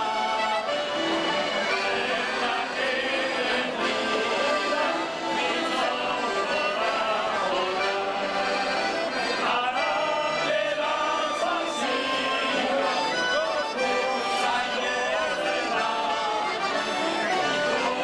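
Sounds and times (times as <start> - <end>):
accordions playing folk tune: 0.0 - 18.0
man singing: 9.4 - 16.8.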